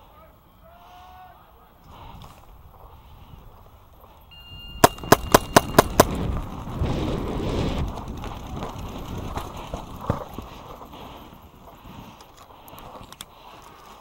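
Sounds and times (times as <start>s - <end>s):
paintball marker shots: 4.8s - 6.2s
running footsteps on dry grass: 4.9s - 14.0s.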